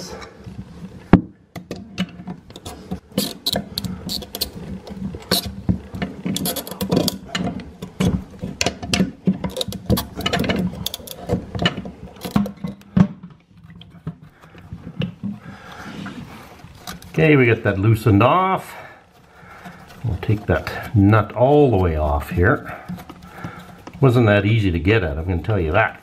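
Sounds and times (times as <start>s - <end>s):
pliers clicking and scraping on nut: 2.5s - 4.6s, 6.2s - 12.9s.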